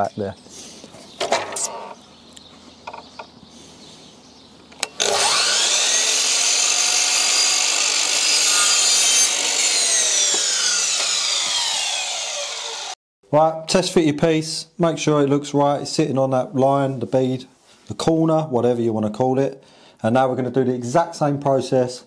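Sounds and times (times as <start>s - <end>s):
mitre saw cutting wood: 4.8s - 13.0s.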